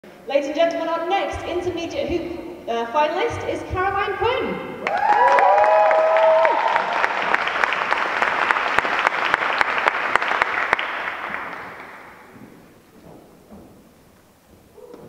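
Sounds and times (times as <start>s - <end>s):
cheering whoops: 4.8s - 7.3s
audience applauding: 4.8s - 12.3s.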